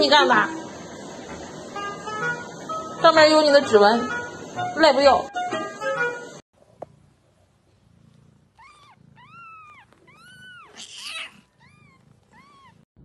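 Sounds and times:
cat mewing: 8.5s - 12.9s.

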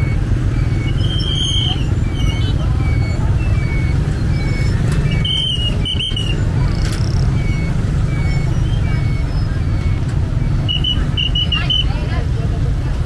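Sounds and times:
faint voices: 0.0s - 13.0s
low rumble of traffic: 0.0s - 13.0s
short high whistle-like tones: 0.7s - 6.4s, 7.4s - 12.0s.

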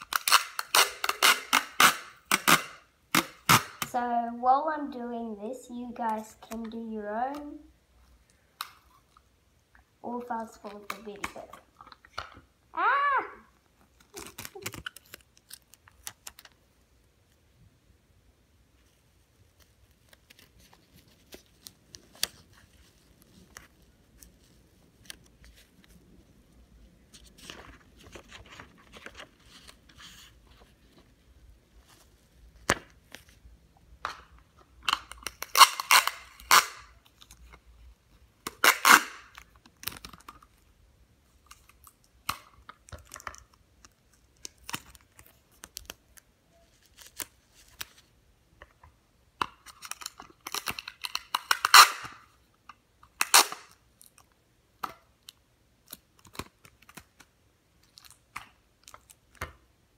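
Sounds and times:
sticky tape ripping: 0.0s - 3.9s, 13.9s - 16.5s, 34.9s - 37.3s, 38.4s - 40.3s, 49.6s - 52.3s, 53.1s - 53.8s.

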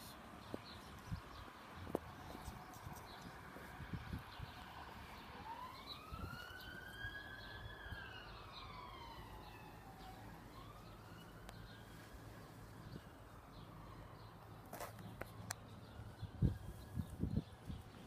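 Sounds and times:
emergency vehicle siren wailing: 4.8s - 17.5s.

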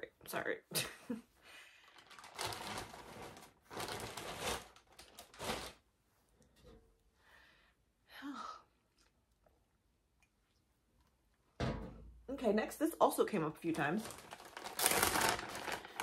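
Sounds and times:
material crinkling and rustling: 1.8s - 5.9s, 13.6s - 16.0s.

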